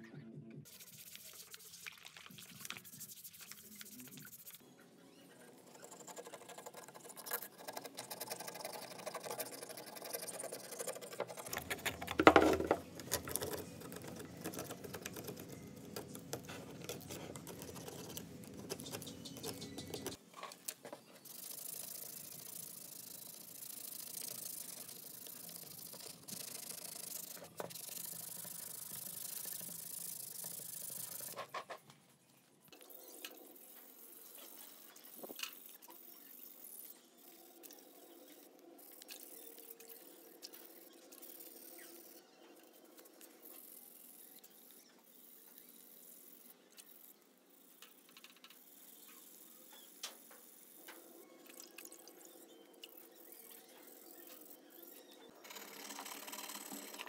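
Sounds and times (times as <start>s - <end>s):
faint splashing and drips: 0.7s - 4.6s.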